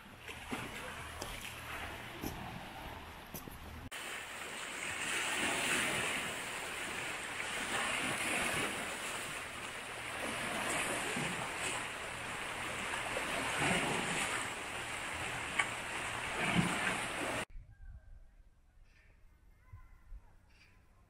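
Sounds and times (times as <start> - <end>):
waves lapping on pebbly shore: 3.9 - 17.5
wind on microphone: 16.3 - 18.5.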